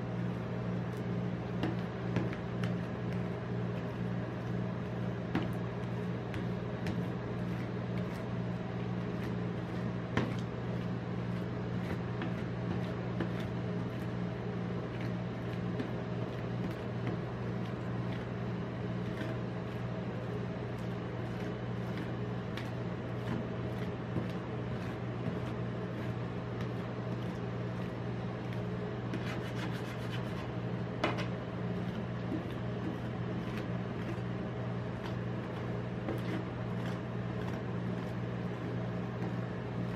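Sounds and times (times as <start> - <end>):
machine low hum: 0.0 - 39.9.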